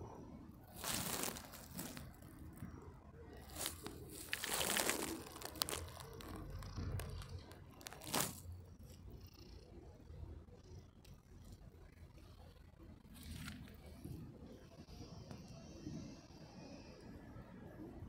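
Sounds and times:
cat purring: 0.0 - 18.0.

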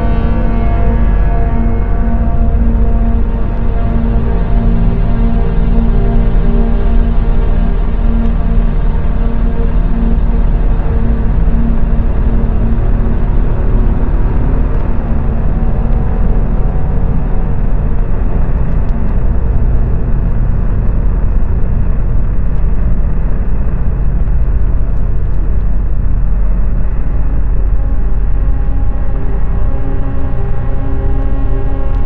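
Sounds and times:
loud low rumble: 0.0 - 32.0.

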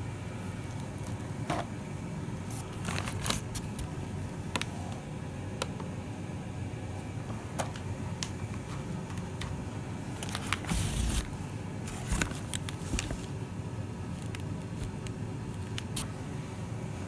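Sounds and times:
steady low hum: 0.0 - 17.0
plastic rustle: 2.5 - 3.9, 10.1 - 13.4.

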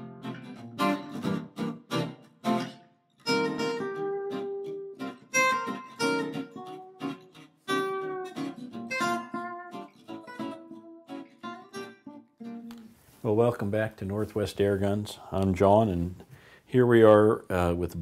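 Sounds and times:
guitar strumming chords: 0.0 - 13.2.

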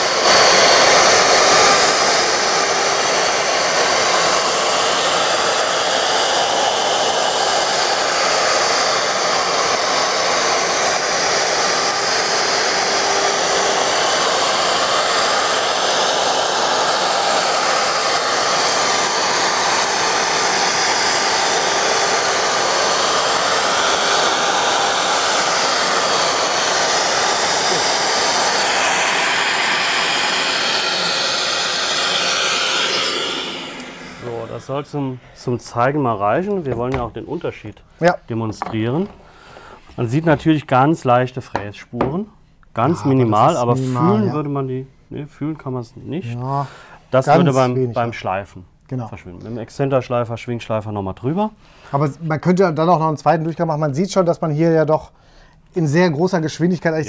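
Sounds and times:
router whining: 0.0 - 35.2
shop vacuum rushing: 0.0 - 40.7.

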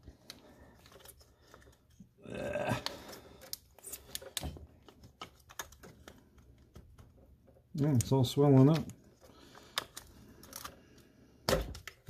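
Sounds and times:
plastic clicks and rattles: 2.8 - 10.8.

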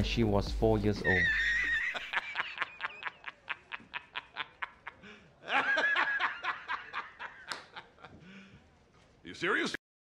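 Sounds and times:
man laughing: 1.1 - 8.3.

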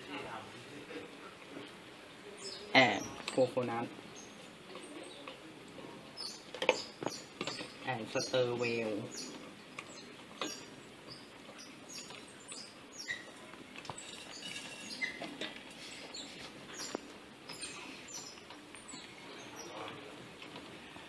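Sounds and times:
spoon scraping a metal pot: 14.0 - 16.1.

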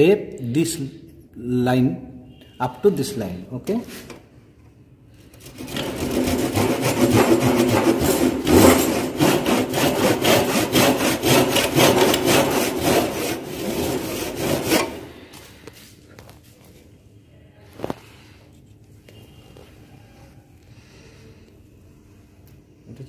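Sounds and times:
hand saw cutting wood: 5.4 - 15.2.

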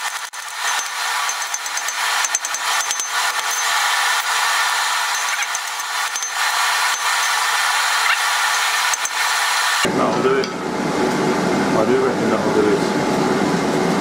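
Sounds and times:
hammer striking hot steel on anvil: 0.4 - 3.9, 5.1 - 7.7.

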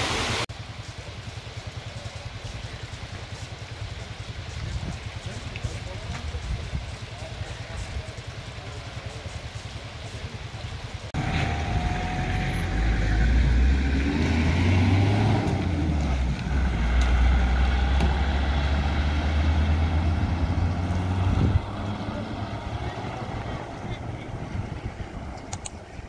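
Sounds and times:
cars driving past: 11.1 - 25.5.

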